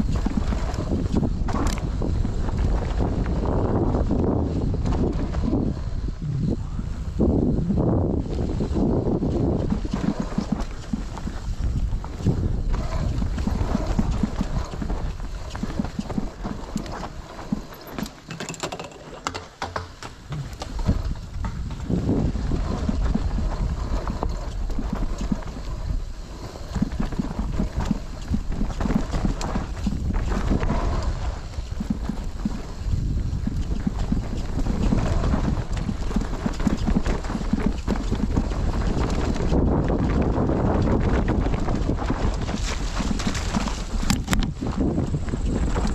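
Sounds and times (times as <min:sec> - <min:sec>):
bike clattering and rattling: 0:00.0 - 0:06.2, 0:07.4 - 0:45.9
wind buffeting microphone: 0:00.0 - 0:18.2, 0:20.2 - 0:45.9
tyres crunching on dirt: 0:08.2 - 0:45.9.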